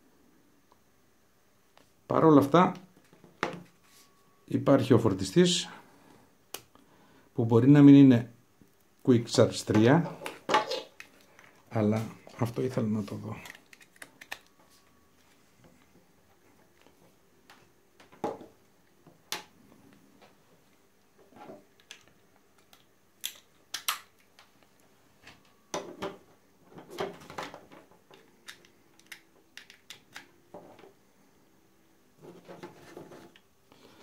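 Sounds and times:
plastic items clicking on desk: 28.1s - 30.3s.

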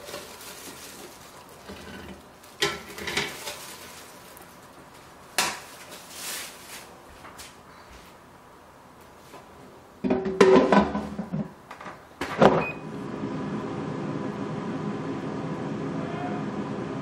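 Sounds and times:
air fryer fan humming: 0.0s - 17.0s
basket knocks and clatter: 10.0s - 12.6s
brief beep: 12.6s - 12.9s.

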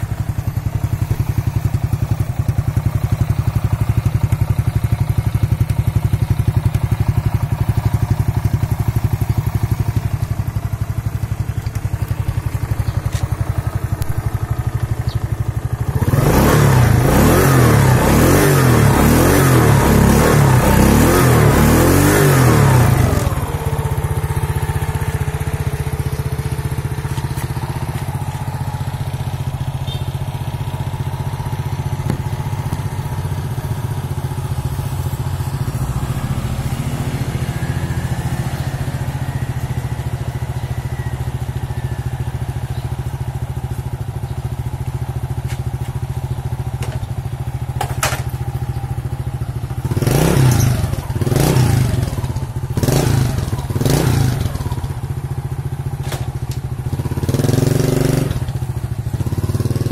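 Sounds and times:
motorcycle engine revving and idling: 0.0s - 59.9s.

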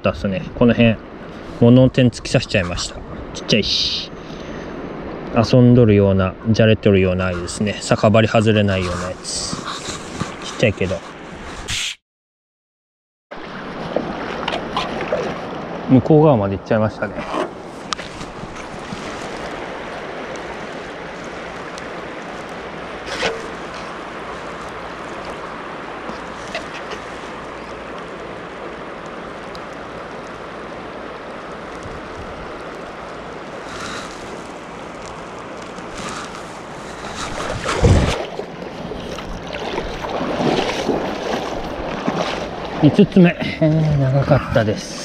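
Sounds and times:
river rushing over stones: 17.5s - 43.4s.

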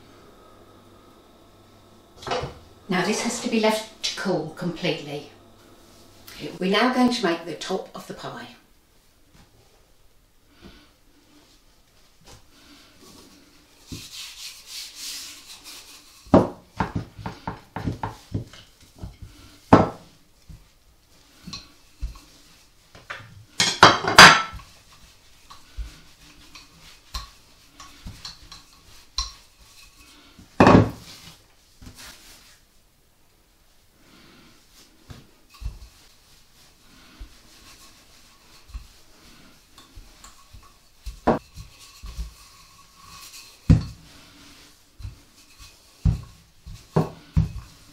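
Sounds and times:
rolling pin and crockery knocking: 16.3s - 18.6s, 19.7s - 20.0s, 23.0s - 24.6s, 30.6s - 31.0s.

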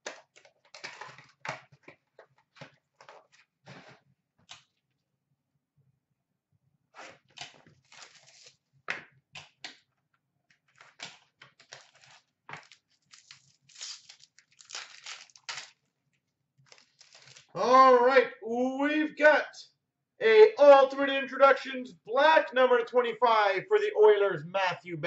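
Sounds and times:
foil packs crinkling and tearing: 7.4s - 8.6s, 10.8s - 15.9s, 16.6s - 17.6s.

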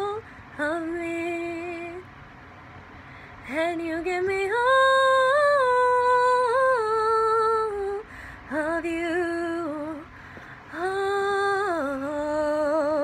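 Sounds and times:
girl singing wordless notes: 3.5s - 13.0s.

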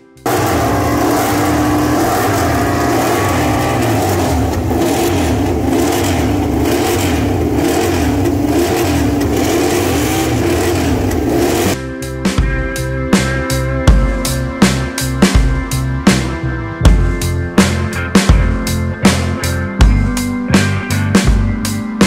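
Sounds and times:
racing motorcycle engines: 0.2s - 11.8s.

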